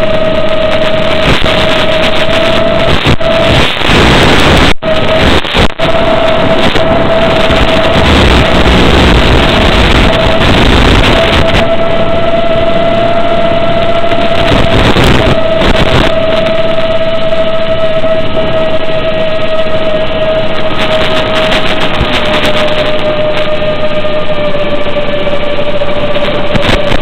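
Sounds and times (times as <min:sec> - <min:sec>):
static hiss: 0:00.0 - 0:11.9, 0:13.2 - 0:18.6, 0:19.6 - 0:24.3, 0:25.6 - 0:27.0
electric motor high hum: 0:00.0 - 0:27.0.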